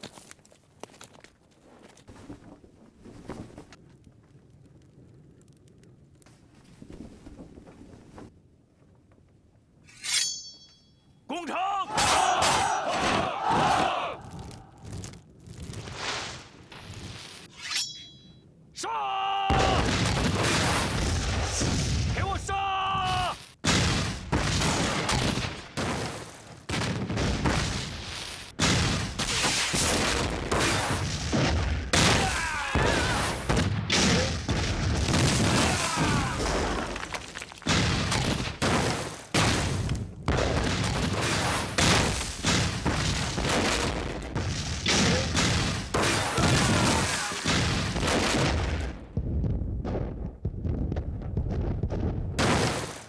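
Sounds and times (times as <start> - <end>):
cannon fire: 19.5 - 22.4, 23.1 - 53.0
explosions: 19.5 - 22.4, 23.0 - 53.0.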